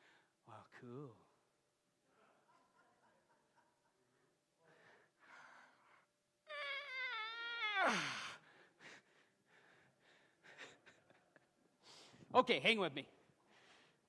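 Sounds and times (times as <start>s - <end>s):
man wailing high-pitched: 6.5s - 8.2s.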